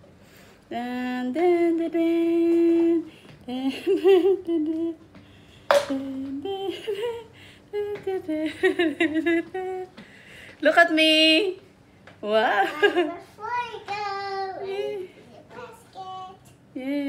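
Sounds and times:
person humming: 5.7 - 8.6.

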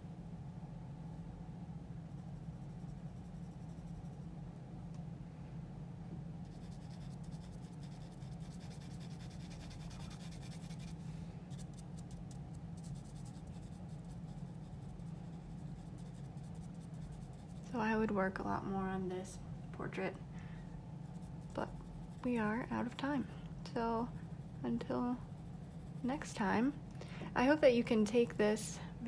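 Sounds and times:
steady low hum: 0.0 - 29.0
pencil scratching on paper: 6.5 - 17.7, 25.3 - 26.3.

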